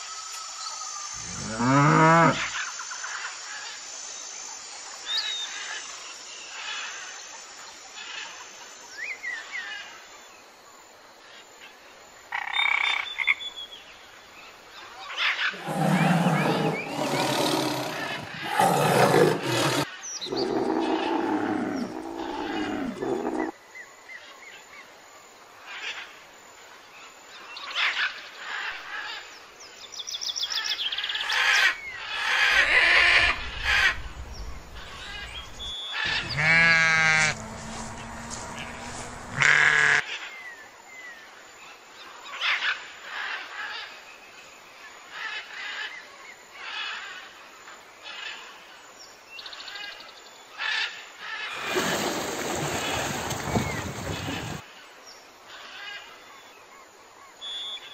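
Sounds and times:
animal calls: 15.5 - 23.5, 31.3 - 40.0.

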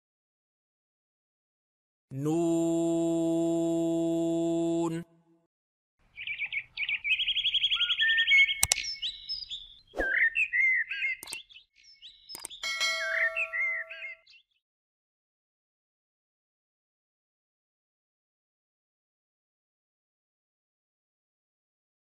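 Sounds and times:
songbirds chirping and trilling: 6.0 - 14.6
sharp clicks: 8.6 - 8.9, 11.2 - 11.5, 12.3 - 12.6.

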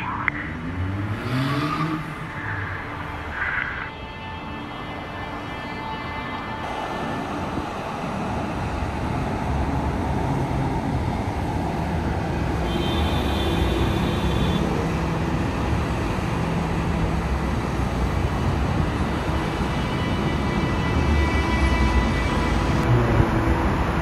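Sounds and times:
highway traffic rushing: 0.0 - 24.0.

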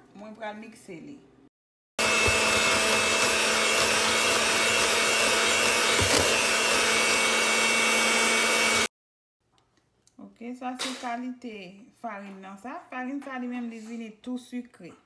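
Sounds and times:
electric mixer whirring: 2.0 - 8.9.

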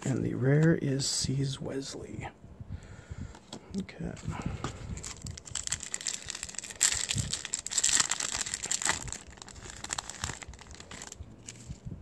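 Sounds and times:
foil wrapper crinkling and tearing: 4.9 - 11.9.

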